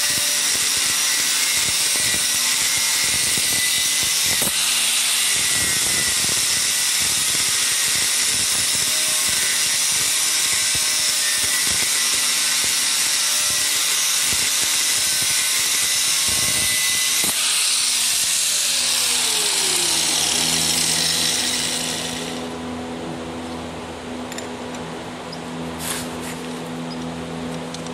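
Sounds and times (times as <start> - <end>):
angle grinder cutting metal rod: 0.0 - 22.7
grinder motor humming unloaded: 7.3 - 22.6.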